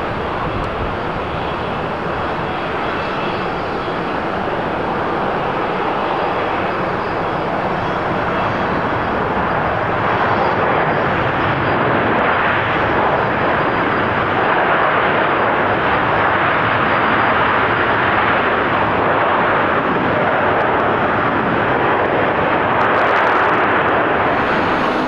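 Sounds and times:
loud jet engine roar: 0.0 - 25.0.

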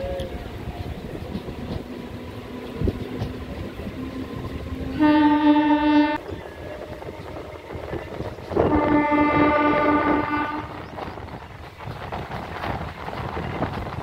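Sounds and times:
train rail noise: 0.0 - 14.0
locomotive horn blast: 4.9 - 6.3, 8.6 - 10.8.

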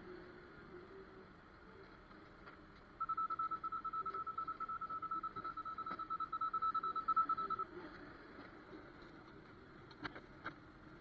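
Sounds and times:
rapid electronic beeping: 3.0 - 7.7.

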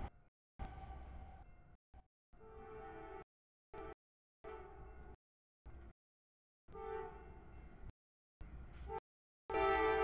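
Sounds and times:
locomotive air horn: 6.7 - 7.4, 8.9 - 10.0.

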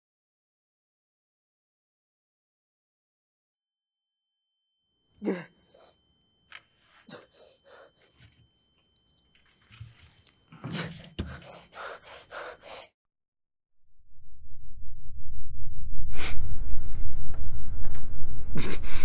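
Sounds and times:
person gasping: 5.2 - 6.0, 7.0 - 8.3, 10.6 - 12.9.

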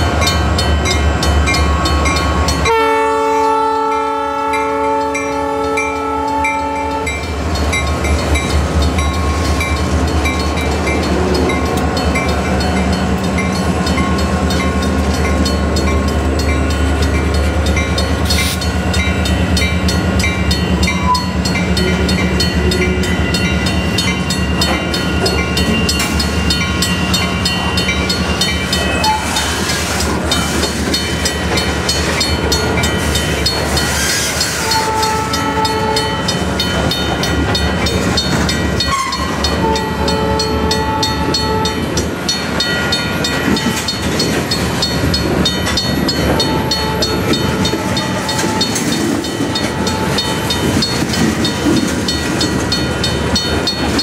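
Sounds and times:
locomotive horn chord: 2.6 - 7.3, 34.6 - 36.2, 38.9 - 41.9
freight cars wheels on rails: 7.0 - 54.0.

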